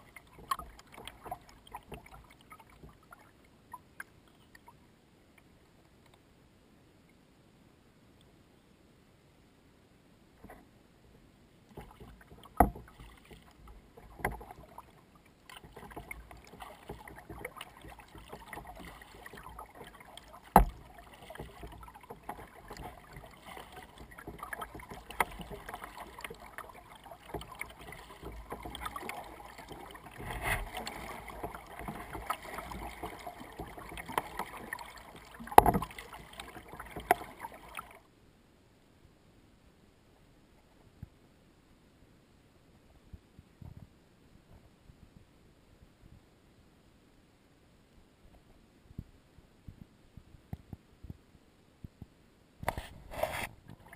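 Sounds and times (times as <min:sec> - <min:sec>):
water sloshing and splashing: 0:00.0 - 0:04.8, 0:11.6 - 0:38.1, 0:52.6 - 0:53.9
knocks on kayak hull: 0:20.5 - 0:20.8.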